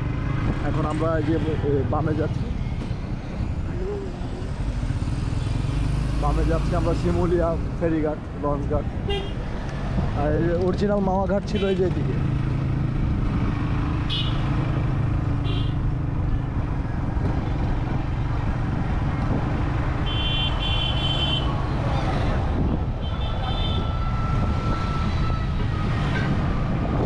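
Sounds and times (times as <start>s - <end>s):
motorcycle engine and road rumble: 0.0s - 27.0s
vehicle horns honking: 9.0s - 9.4s, 14.1s - 14.5s, 15.4s - 15.8s, 20.0s - 21.6s, 23.0s - 24.5s.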